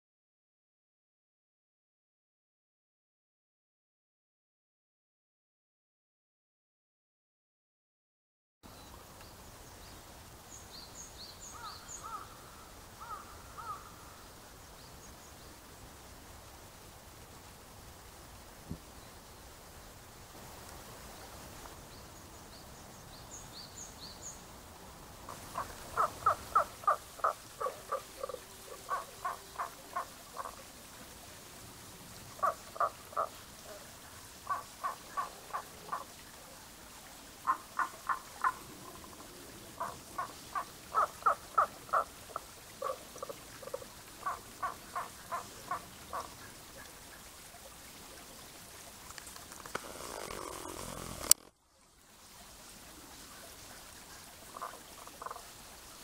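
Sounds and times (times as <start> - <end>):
frog croaking: 25.3 - 30.6, 32.4 - 36.1, 37.4 - 46.3, 54.5 - 55.4.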